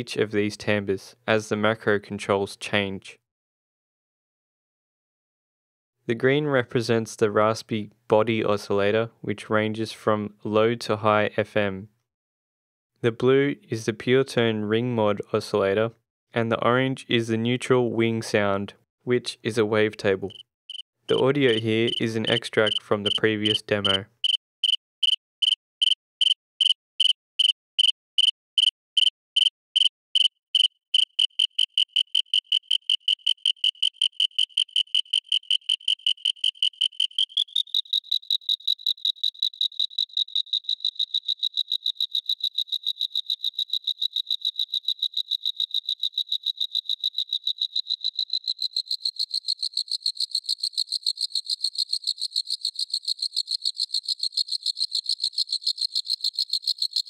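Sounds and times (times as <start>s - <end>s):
synthesized cricket chirp: 20.3s - 57.0s.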